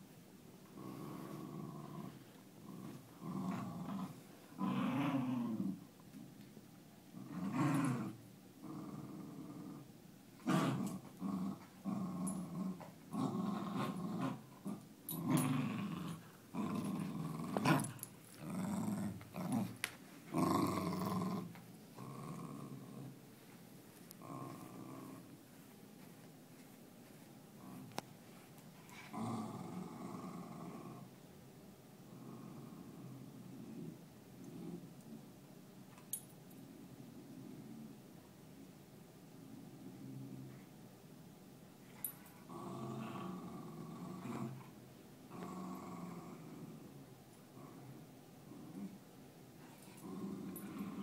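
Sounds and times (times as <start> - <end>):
dogs play-growling: 0.7 - 6.5, 7.1 - 23.2, 24.0 - 25.4, 27.5 - 31.1, 32.1 - 35.2, 41.9 - 49.0, 49.6 - 51.0.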